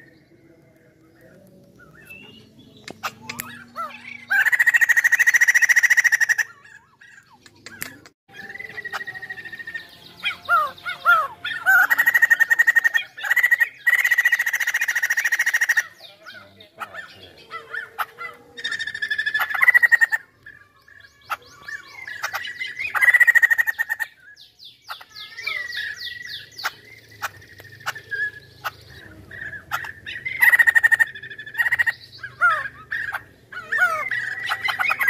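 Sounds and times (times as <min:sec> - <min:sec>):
bird rapid chattering: 0:01.2 - 0:35.0
bird whistled notes: 0:07.6 - 0:15.1.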